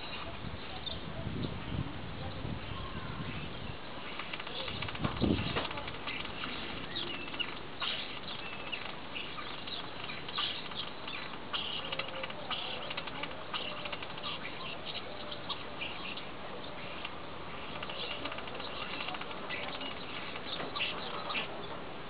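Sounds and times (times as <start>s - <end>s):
starling singing clicks and whistles: 4.0s - 21.7s.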